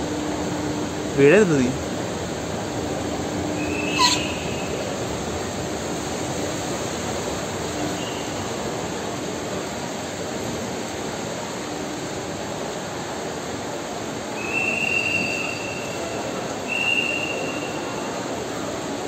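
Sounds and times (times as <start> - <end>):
airport terminal hall hum: 0.0 - 19.0.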